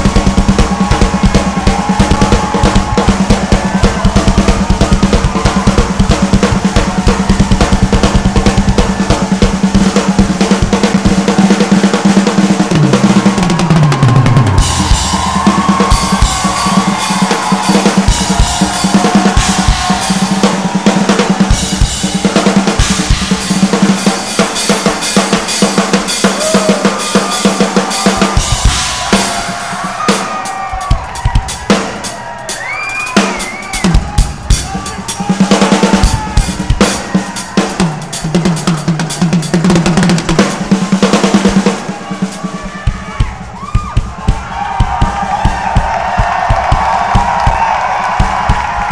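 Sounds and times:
drum kit solo: 0:00.0 - 0:48.9.

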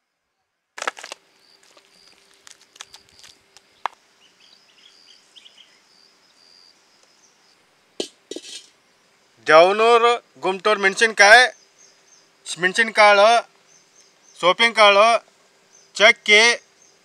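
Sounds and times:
faint high bird chirps: 0:02.8 - 0:07.6.

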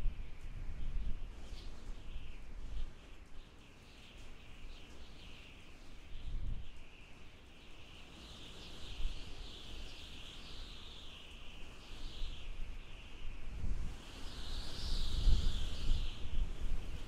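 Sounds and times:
low rumbling wind gusts: 0:00.0 - 0:03.6, 0:08.5 - 0:17.0
high wavering wind whistle: 0:08.7 - 0:17.0.

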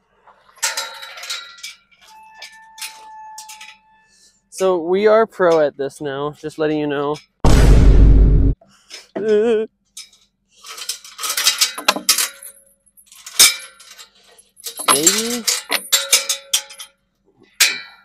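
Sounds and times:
chain and latch rattling on gate: 0:00.5 - 0:03.9, 0:10.0 - 0:17.0.

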